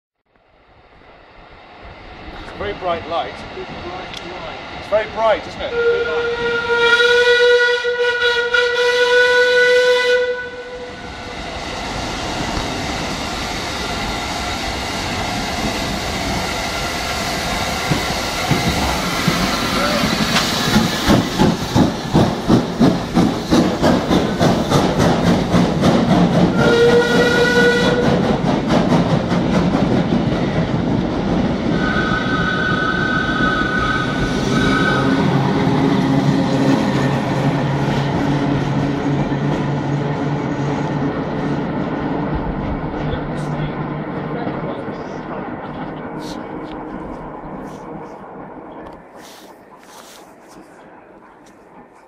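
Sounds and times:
railway carriage wheels rumbling: 0.5 - 52.0
steam locomotive running: 0.7 - 52.0
steam whistle: 5.7 - 11.1, 26.5 - 28.2, 31.8 - 35.6
two-pitched wheel squeal: 31.8 - 35.4.

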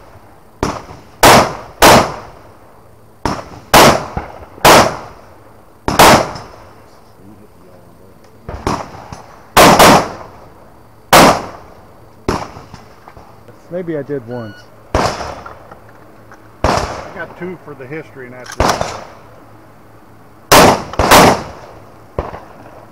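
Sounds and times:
gunshot echo: 0.6 - 2.3, 3.2 - 5.1, 5.9 - 6.6, 8.5 - 10.3, 11.1 - 11.6, 12.3 - 12.8, 14.9 - 15.4, 16.6 - 17.3, 18.6 - 19.2, 20.5 - 22.8
rifle shots: 0.6 - 2.4, 3.2 - 5.2, 5.8 - 6.6, 8.5 - 10.4, 11.1 - 11.7, 12.3 - 12.9, 14.9 - 15.6, 16.6 - 17.4, 18.4 - 19.2, 20.5 - 22.8.

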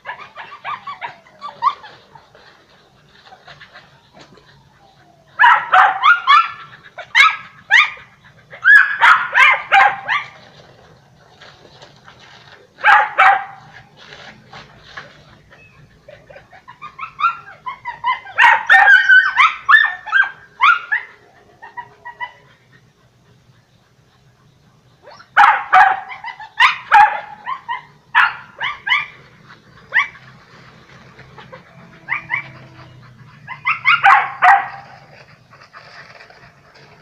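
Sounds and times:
dogs barking: 3.5 - 10.4, 12.8 - 13.8, 16.1 - 23.1, 25.0 - 35.2.

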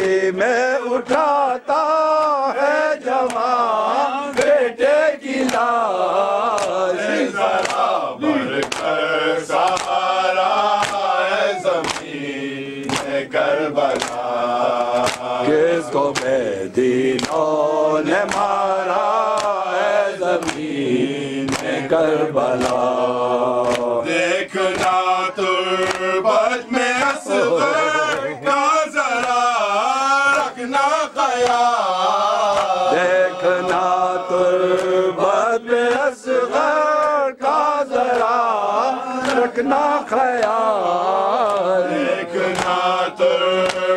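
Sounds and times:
men chanting a lament: 0.0 - 43.9
hand slaps on chest: 5.4 - 5.7, 6.5 - 6.8, 7.6 - 7.9, 8.6 - 9.0, 9.6 - 10.0, 10.7 - 11.1, 11.8 - 12.1, 12.8 - 13.2, 13.9 - 14.2, 14.8 - 15.3, 17.2 - 17.5, 18.2 - 18.6, 19.3 - 19.6, 20.4 - 20.7, 21.4 - 21.8, 22.6 - 22.8, 23.6 - 23.9, 24.7 - 25.0, 25.8 - 26.1, 32.5 - 32.8, 38.1 - 38.4, 39.2 - 39.5, 42.5 - 42.8, 43.6 - 43.9.

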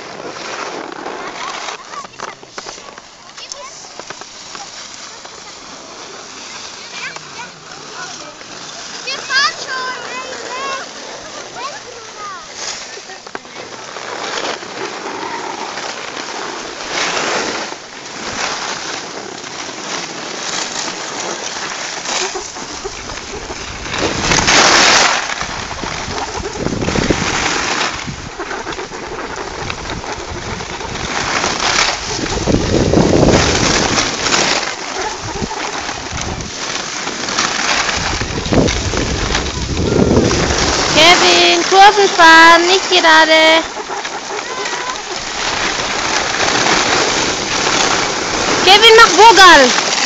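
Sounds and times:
skis scraping over snow: 0.0 - 50.0
wind rumbling on microphone: 22.0 - 50.0.

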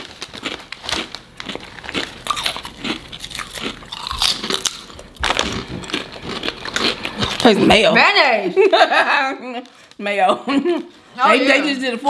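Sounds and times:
people crunching potato chips: 0.0 - 7.8.

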